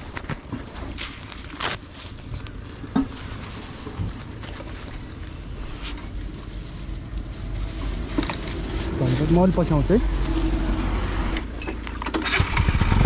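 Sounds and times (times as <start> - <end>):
low rumble: 2.1 - 11.5.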